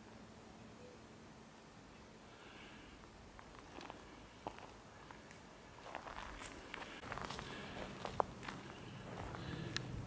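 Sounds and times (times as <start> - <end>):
footsteps on dirt trail: 3.3 - 10.0.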